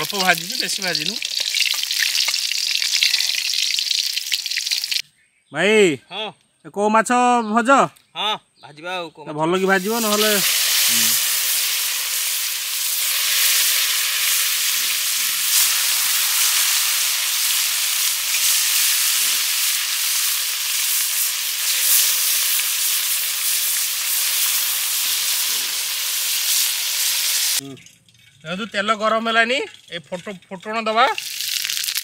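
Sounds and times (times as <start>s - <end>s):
fish sizzling in hot oil: 0.0s - 5.0s, 9.6s - 27.6s, 31.1s - 32.0s.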